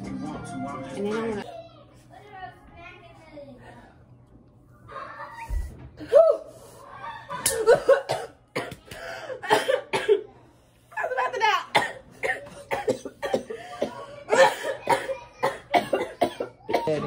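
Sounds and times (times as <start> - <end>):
people coughing: 7.4 - 10.3, 11.7 - 17.0.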